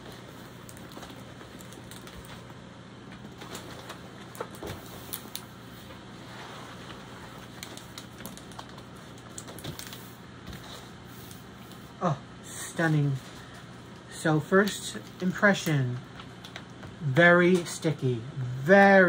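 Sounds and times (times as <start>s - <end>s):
plastic sheet crackling and rustling: 0.0s - 11.9s
steady low hum: 0.0s - 19.0s.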